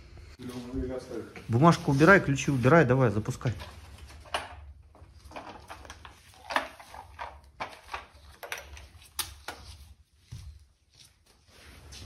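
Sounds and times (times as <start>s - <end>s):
footsteps on workshop floor: 9.5s - 12.0s.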